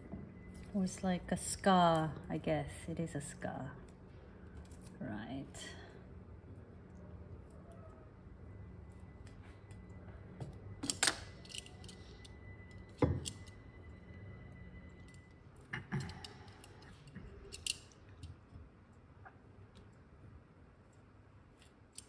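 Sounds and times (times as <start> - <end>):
tape peeling crackles and scrapes: 3.8 - 5.0.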